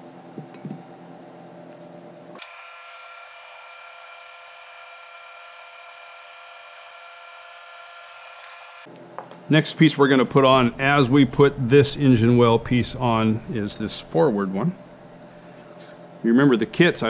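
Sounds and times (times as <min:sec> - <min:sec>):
steady tonal hum: 0:09.2 - 0:17.0.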